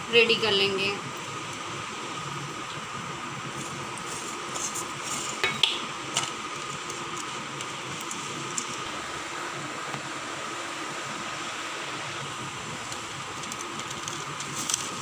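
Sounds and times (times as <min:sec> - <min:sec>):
pastry brush spreading oil: 0:03.6 - 0:05.5.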